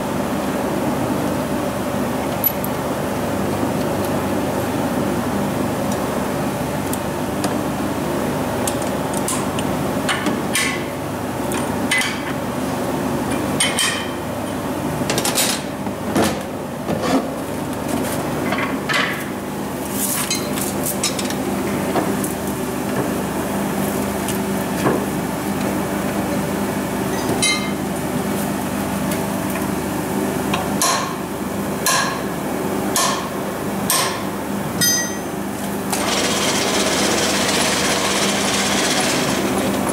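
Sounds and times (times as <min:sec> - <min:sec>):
steady machine hum: 0:21.3 - 0:39.9.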